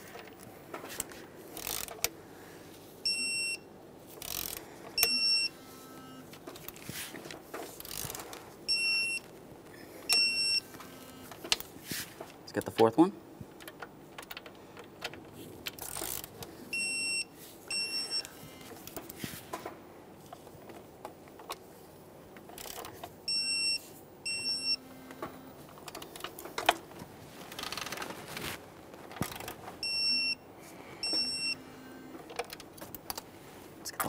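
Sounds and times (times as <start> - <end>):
ratchet and socket clicks: 1.6 - 2.1, 4.2 - 5.1, 7.8 - 8.2, 15.8 - 16.3
torque wrench beeping: 3.0 - 6.3.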